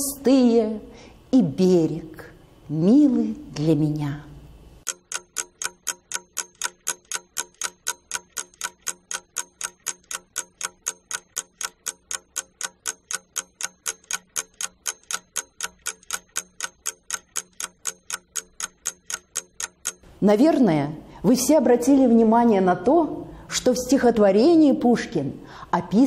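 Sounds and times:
clock ticking: 0:04.8 - 0:20.6.

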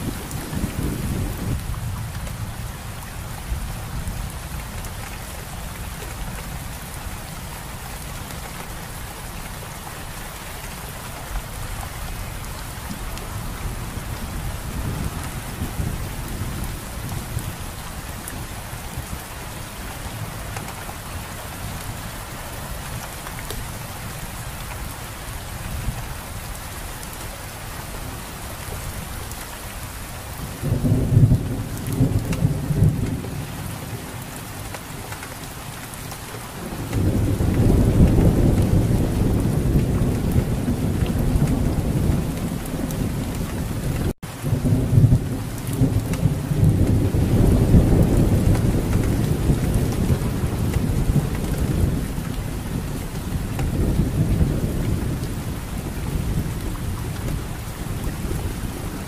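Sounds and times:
low thunder rumbling: 0:00.0 - 0:04.5, 0:12.1 - 0:22.0, 0:30.3 - 0:34.2, 0:36.6 - 0:59.0
steady rain falling: 0:00.0 - 0:59.0.

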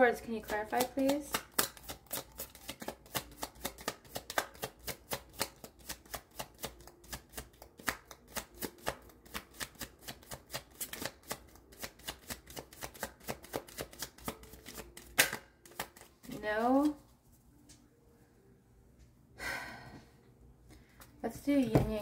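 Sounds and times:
cards being shuffled: 0:00.5 - 0:17.1.

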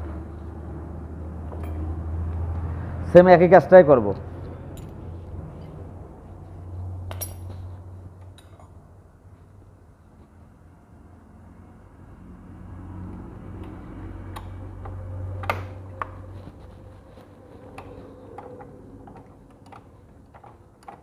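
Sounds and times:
low steady hum: 0:00.0 - 0:21.0
light clicks and taps of tools: 0:01.5 - 0:02.6, 0:13.1 - 0:16.6, 0:17.2 - 0:21.0.

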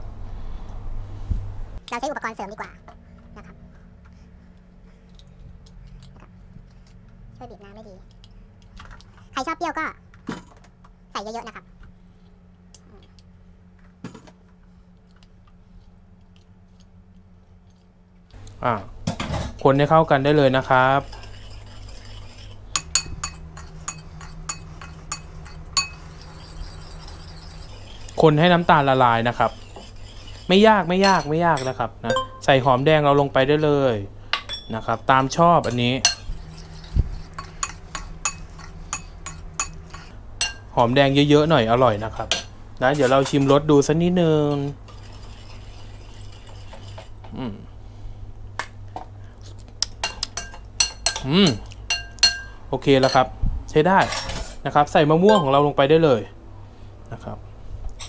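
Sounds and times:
steady low hum: 0:00.0 - 0:58.0
metal spoon clinking against bowl: 0:22.8 - 0:27.6, 0:31.0 - 0:32.6, 0:35.6 - 0:36.6, 0:37.3 - 0:40.7, 0:49.9 - 0:53.3, 0:55.3 - 0:55.6
person humming: 0:47.3 - 0:47.8.

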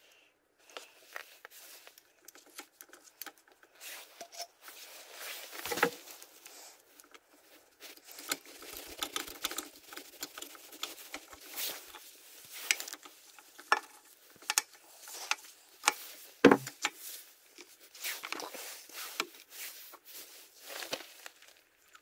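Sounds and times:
rustling of gloves and jacket: 0:00.6 - 0:22.0
dull knock: 0:16.5 - 0:16.7.

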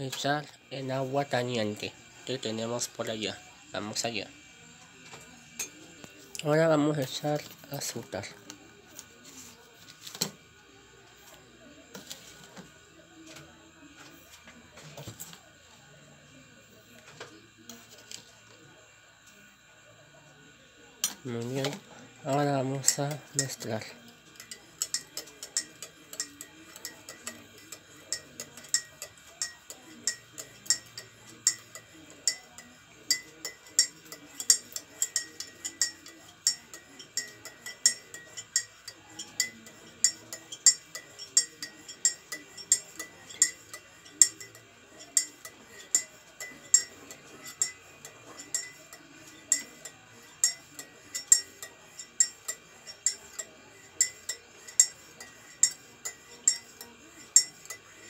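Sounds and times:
spoon clinking in ceramic mug: 0:22.8 - 0:58.0.

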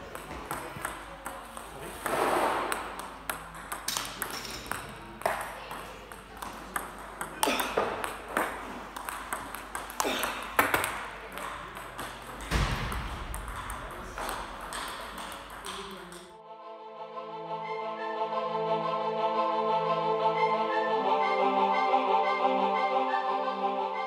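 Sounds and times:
music with sustained tones: 0:16.4 - 0:24.0.

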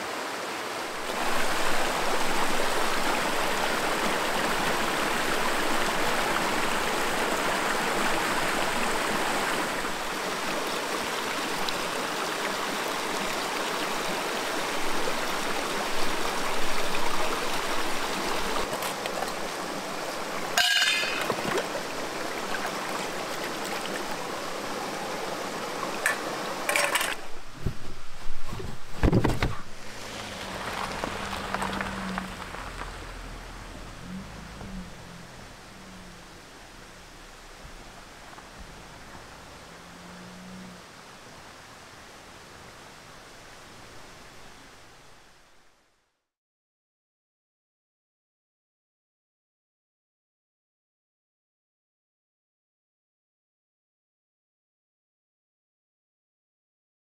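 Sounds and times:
brook running over stones: 0:00.0 - 0:36.8
knocks and bumps: 0:27.6 - 0:29.7.

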